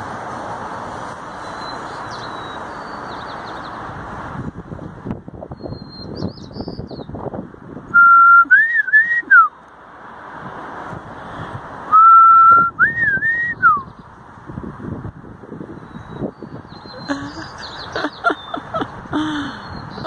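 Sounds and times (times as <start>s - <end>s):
traffic noise: 0.0s - 20.0s
faint high bird chirps: 5.6s - 7.1s, 15.8s - 18.7s
person whistling: 8.0s - 9.5s, 11.9s - 13.8s.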